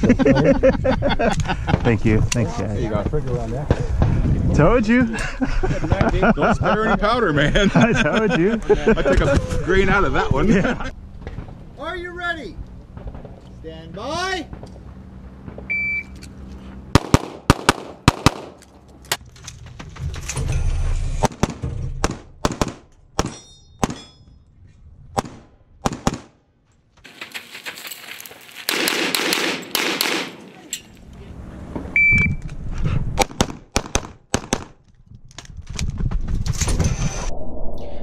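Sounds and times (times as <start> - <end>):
pistol shots: 16.9 - 18.6, 21.2 - 24.0, 25.2 - 26.4, 28.7 - 30.8, 33.2 - 34.8
shot timer beep: 32.0 - 32.4.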